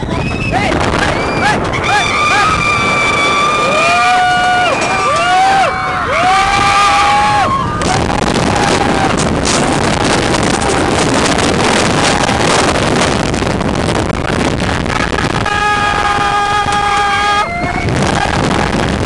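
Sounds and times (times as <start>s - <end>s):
roller coaster train running: 0.0s - 19.0s
wind rushing over microphone: 0.0s - 19.0s
riders screaming: 0.1s - 9.2s, 14.9s - 18.8s.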